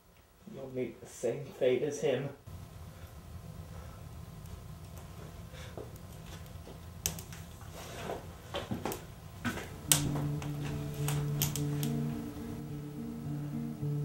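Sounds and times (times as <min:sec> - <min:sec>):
low room hum: 0:00.0 - 0:14.0
background music with held notes: 0:09.6 - 0:14.0.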